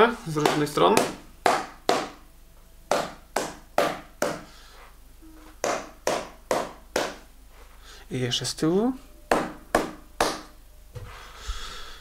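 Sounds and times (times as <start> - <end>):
sharp hand claps: 0.5 - 2.2, 2.9 - 4.4, 5.6 - 7.2, 9.3 - 10.6.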